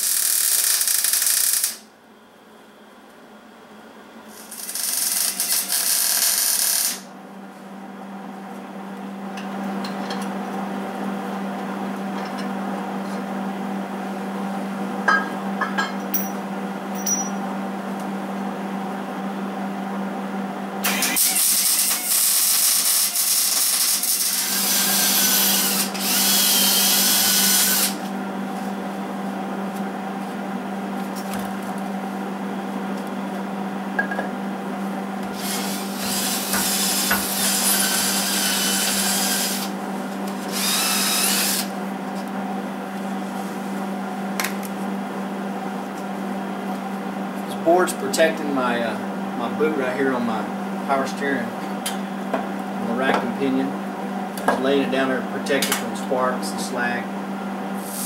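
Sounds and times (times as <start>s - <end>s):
welding arc crackling: 0.0s - 1.9s, 4.3s - 7.1s.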